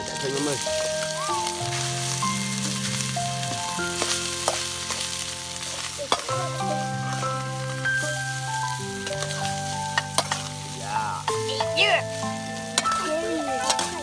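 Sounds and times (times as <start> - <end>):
rice sizzling in frying pan: 0.0 - 14.0
slow melody: 0.0 - 14.0
metal spatula clinking on pan: 5.8 - 6.4, 10.0 - 10.5.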